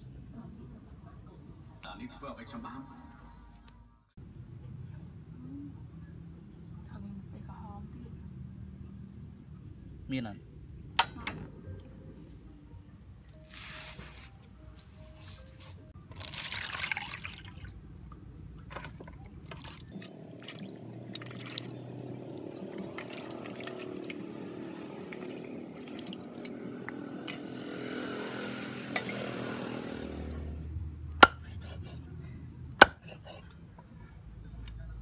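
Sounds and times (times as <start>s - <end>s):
water sloshing in metal basin: 16.1s - 17.8s, 18.7s - 26.6s.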